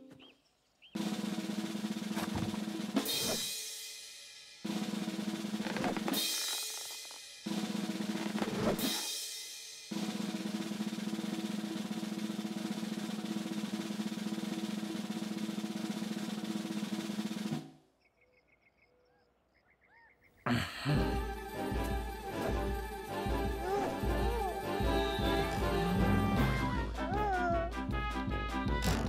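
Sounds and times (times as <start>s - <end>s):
snare drum roll: 9.9s - 17.7s.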